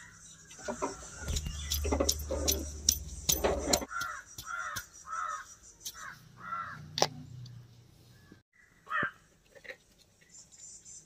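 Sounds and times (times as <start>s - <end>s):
crow cawing: 3.9s - 6.9s, 8.6s - 9.2s.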